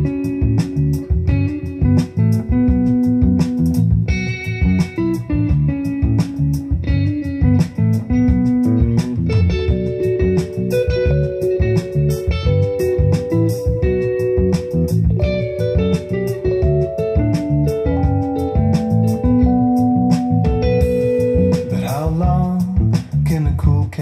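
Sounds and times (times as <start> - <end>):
guitar-led music over speakers: 0.0 - 24.0.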